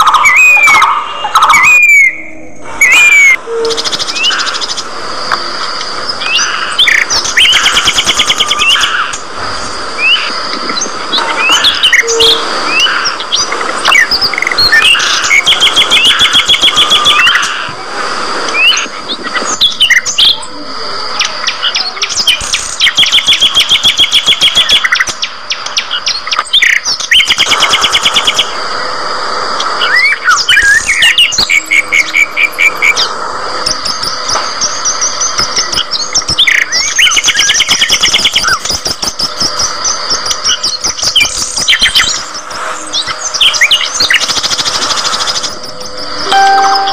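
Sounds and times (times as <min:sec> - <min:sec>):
budgerigars chirping and chattering: 0:02.8 - 0:05.0, 0:10.0 - 0:17.6.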